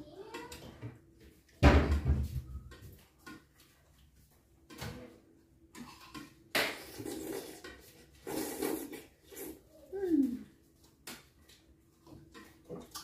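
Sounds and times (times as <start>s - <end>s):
knocking and handling at a table: 0.4s - 5.2s.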